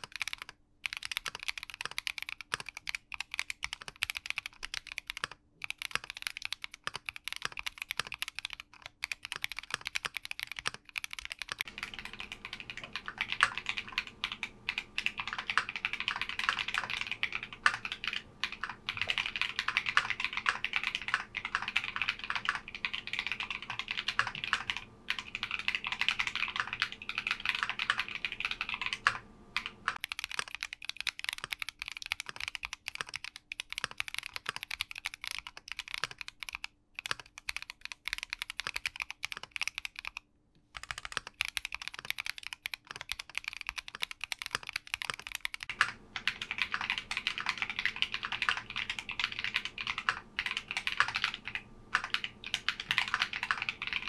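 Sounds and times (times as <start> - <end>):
mechanical keyboard typing: 0.0 - 54.0.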